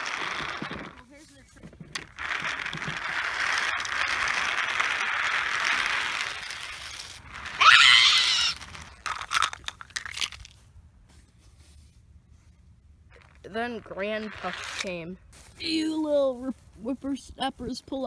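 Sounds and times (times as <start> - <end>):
loud rising squeal: 7.4 - 8.8.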